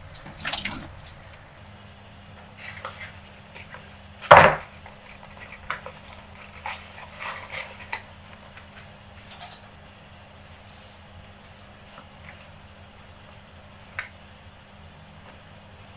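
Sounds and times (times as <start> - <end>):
paper wrapper crinkling: 4.6 - 9.6.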